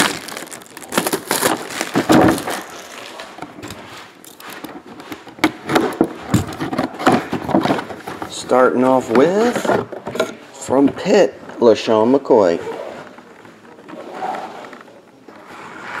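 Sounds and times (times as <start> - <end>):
plastic shrink wrap crackling: 0.0 - 5.2.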